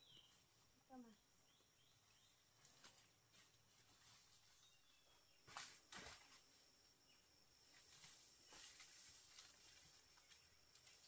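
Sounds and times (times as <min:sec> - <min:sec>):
leaves rustling: 0:02.5 - 0:06.7, 0:07.7 - 0:11.0.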